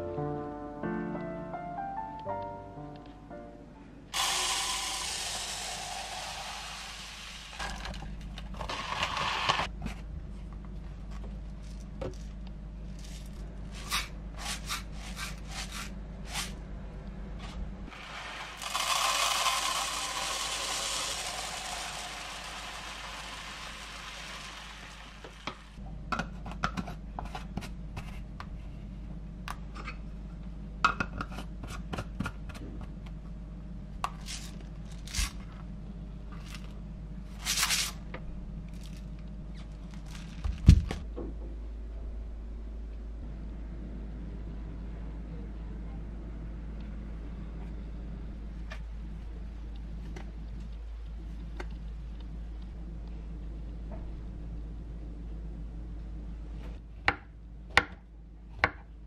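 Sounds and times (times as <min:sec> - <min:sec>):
grain pouring into jars: 0:17.9 - 0:25.8.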